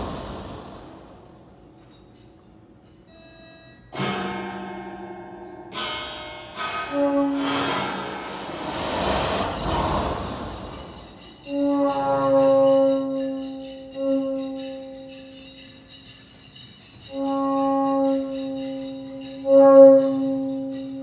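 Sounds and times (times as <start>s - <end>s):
high jingling bells: 1.3s - 3.8s, 8.2s - 21.0s
held pitched note: 6.6s - 15.2s.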